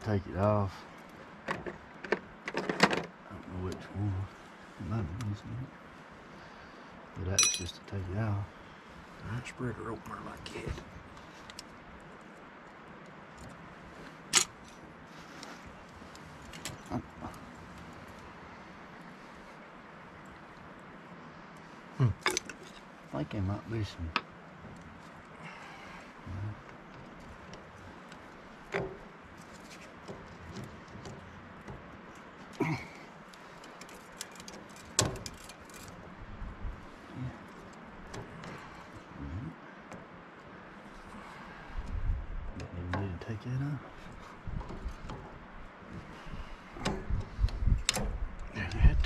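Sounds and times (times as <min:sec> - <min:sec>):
loud metal clink: 0:07.4 - 0:07.8
light clicks: 0:46.8 - 0:48.8.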